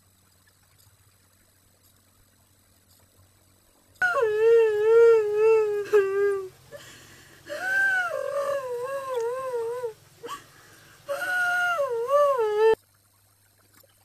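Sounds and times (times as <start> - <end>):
dog howling and whining: 4.0 - 6.6, 7.5 - 10.4.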